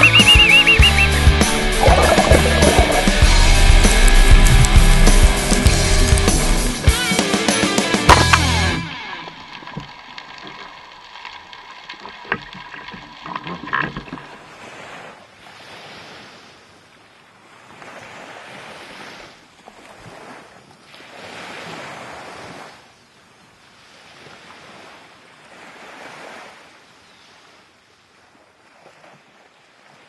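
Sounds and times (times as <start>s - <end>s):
small waves washing onto sand: 8.8s - 30.0s.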